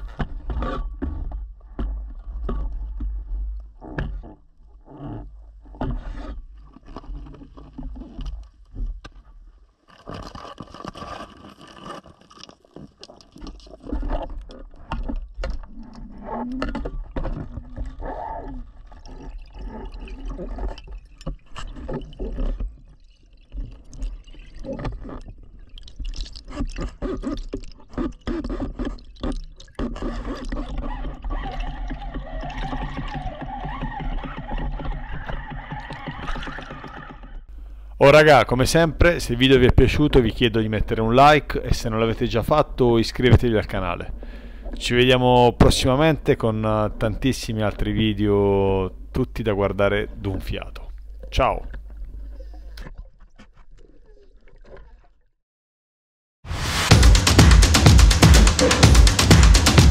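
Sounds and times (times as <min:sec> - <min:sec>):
knocking and scraping against rock: 0:00.0 - 0:04.4.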